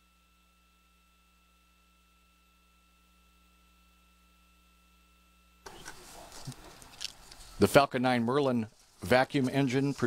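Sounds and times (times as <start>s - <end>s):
faint electrical hum: 0.0s - 10.0s
crackling noise: 5.6s - 10.0s.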